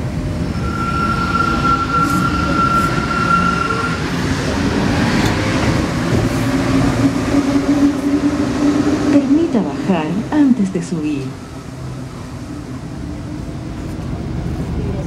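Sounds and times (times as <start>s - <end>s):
metro train rumble on rails: 0.0s - 15.0s
high steady squeal: 0.6s - 4.2s.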